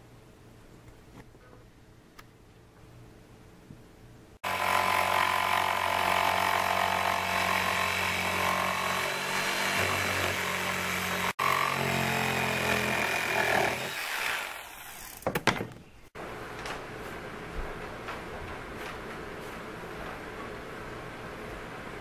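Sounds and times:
electric jigsaw cutting plywood: 0:04.4 - 0:15.2.

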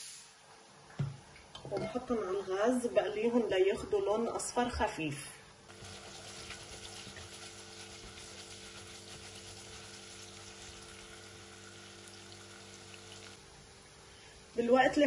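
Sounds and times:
spatula stirring in pot: 0:05.7 - 0:10.5.

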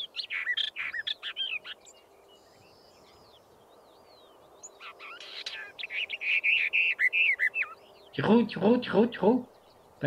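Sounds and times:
warbler singing: 0:00.0 - 0:10.0.

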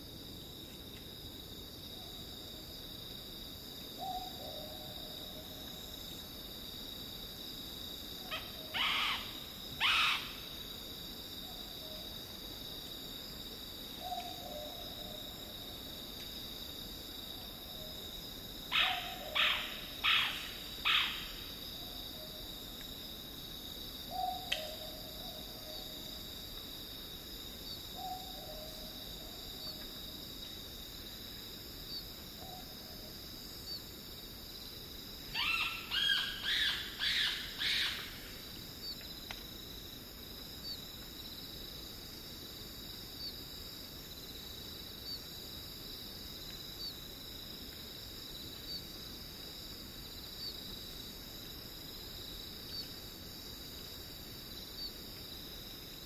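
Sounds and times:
insect trill: 0:00.0 - 0:56.0.

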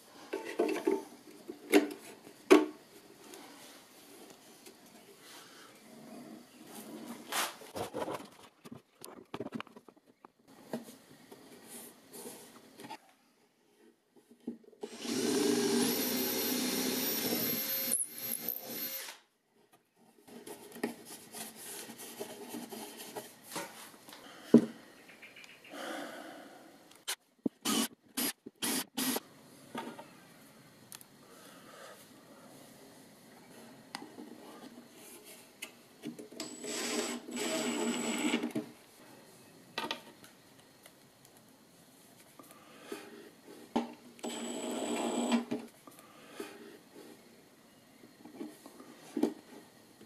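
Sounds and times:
power drill drilling into wood: 0:14.8 - 0:19.2, 0:36.4 - 0:38.4.

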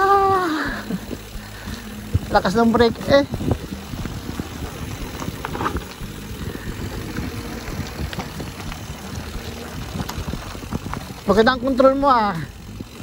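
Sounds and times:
bike rattling: 0:00.0 - 0:13.0
tyres rumbling on dirt: 0:00.0 - 0:13.0.

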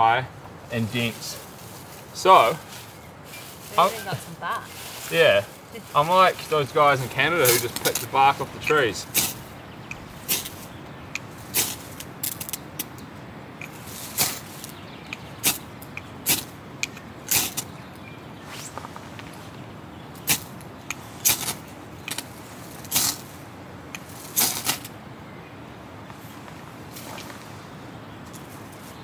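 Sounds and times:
scratchy strikes on tinder: 0:07.3 - 0:12.5, 0:13.6 - 0:14.7, 0:15.4 - 0:16.5, 0:20.2 - 0:20.6.

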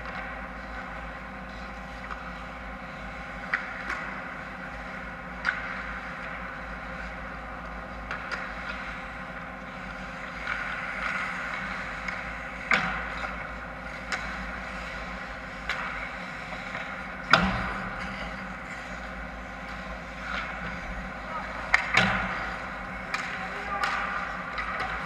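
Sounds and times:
steady rink hum: 0:00.0 - 0:25.0
hockey sticks and puck clacking: 0:03.4 - 0:07.2, 0:08.0 - 0:09.0, 0:09.7 - 0:19.1, 0:19.7 - 0:25.0.

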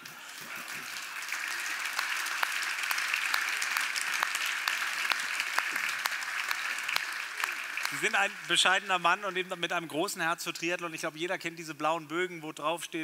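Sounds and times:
audience applauding: 0:00.0 - 0:09.9.

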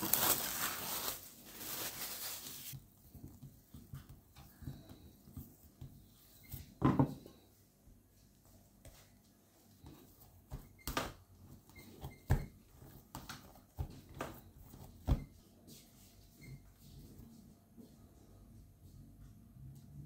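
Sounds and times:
dough rustling on work surface: 0:00.0 - 0:17.6
dough thumping on surface: 0:09.8 - 0:15.4.

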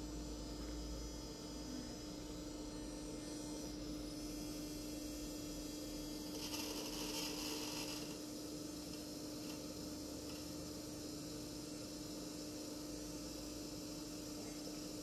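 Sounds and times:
electrical hum: 0:00.0 - 0:15.0.

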